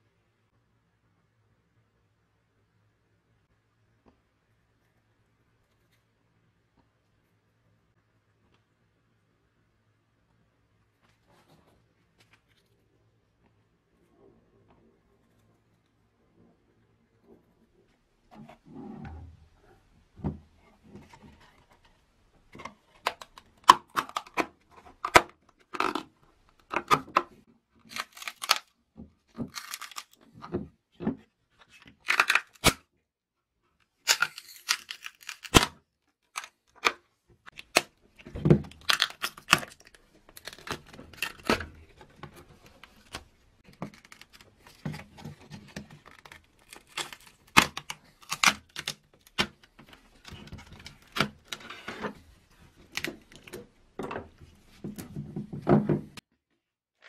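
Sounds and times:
plastic mould tearing and crackling: 0:22.5 - 0:30.4, 0:31.6 - 0:32.8, 0:34.0 - 0:53.7.

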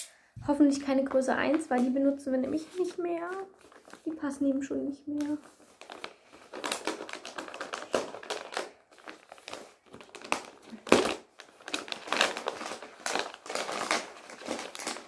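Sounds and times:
packaging crinkling: 0:02.6 - 0:04.2, 0:05.2 - 0:15.0.

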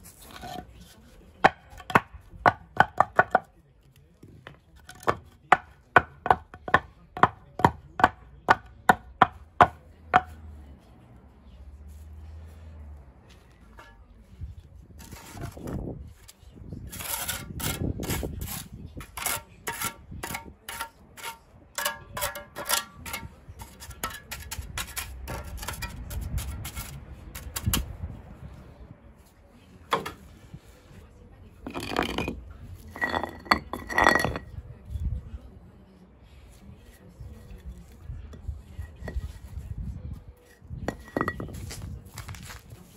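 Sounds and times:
trowel clinking on concrete: 0:00.1 - 0:03.6, 0:13.6 - 0:14.2, 0:16.9 - 0:27.9, 0:31.6 - 0:34.6, 0:37.5 - 0:39.5, 0:40.4 - 0:42.6.

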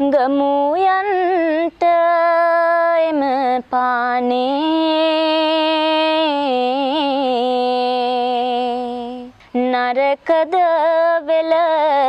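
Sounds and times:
woman singing unaccompanied: 0:00.0 - 0:12.0.

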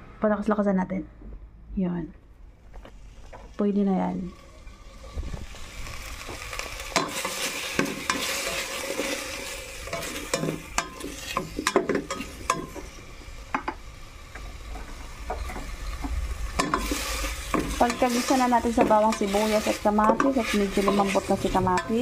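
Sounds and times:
vegetables sizzling in oil: 0:02.8 - 0:22.0
utensil scraping a metal pot: 0:16.6 - 0:22.0.

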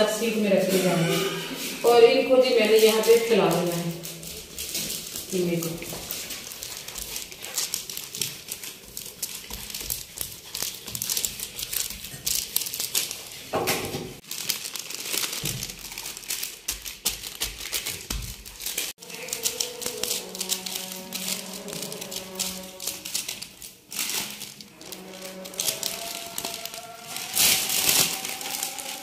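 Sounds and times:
background music: 0:00.0 - 0:04.1, 0:19.0 - 0:29.0
plastic sheet crinkling: 0:00.0 - 0:29.0.

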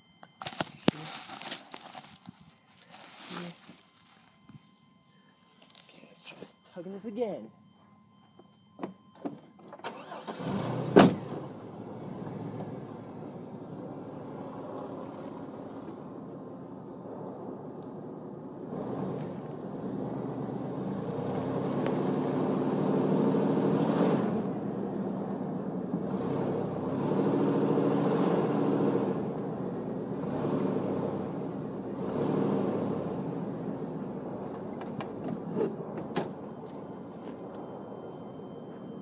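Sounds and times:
truck engine revving: 0:09.9 - 0:36.5.

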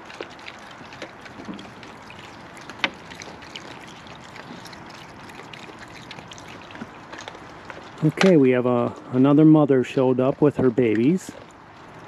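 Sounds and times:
raccoons chewing crunchy cereal: 0:00.0 - 0:09.1.

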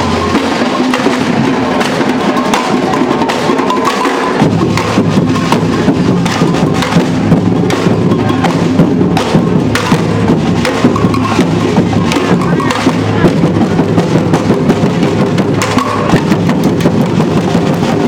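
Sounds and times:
drum band playing: 0:00.0 - 0:18.0
deep bass drums: 0:04.4 - 0:18.0.

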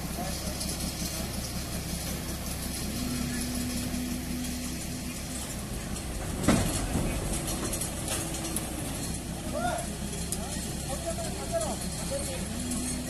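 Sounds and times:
truck engine idling: 0:00.0 - 0:13.0.

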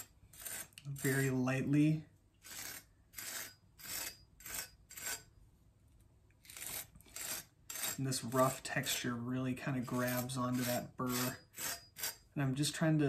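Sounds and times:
knife scratching scouring pad: 0:00.0 - 0:01.4, 0:02.4 - 0:05.3, 0:06.4 - 0:09.0, 0:09.7 - 0:12.2.

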